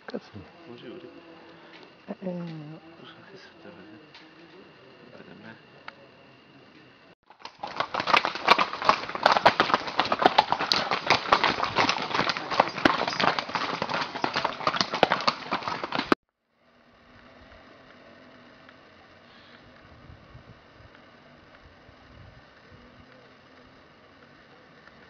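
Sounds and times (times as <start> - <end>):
horse hooves on cobblestones: 7.3 - 16.2.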